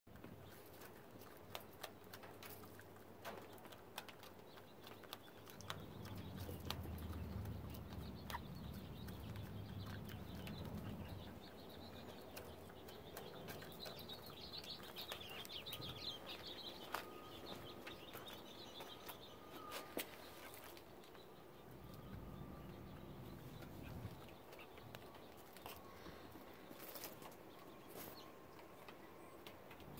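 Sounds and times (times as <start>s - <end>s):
chickens pecking feed: 0.1s - 29.9s
high chirping call: 5.8s - 20.0s.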